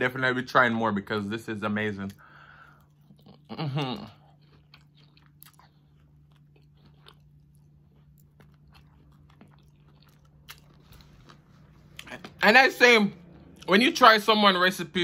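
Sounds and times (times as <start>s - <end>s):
crunchy chewing: 2.7s - 12.4s.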